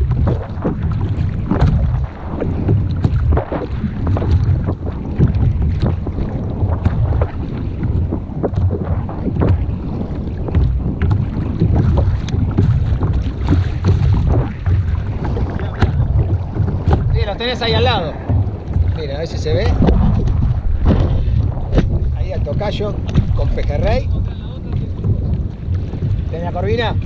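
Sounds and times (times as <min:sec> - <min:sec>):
water slapping against kayak hull: 0:00.0 - 0:27.0
wind buffeting microphone: 0:00.0 - 0:27.0.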